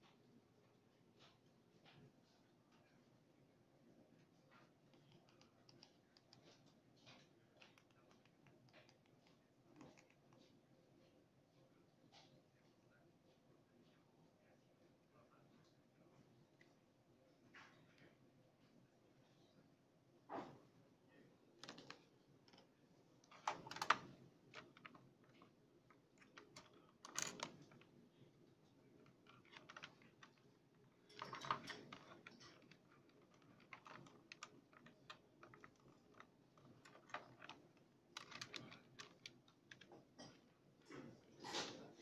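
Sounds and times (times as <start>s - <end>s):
plastic buttons clicking: 23.3s - 24.9s, 26.3s - 27.8s.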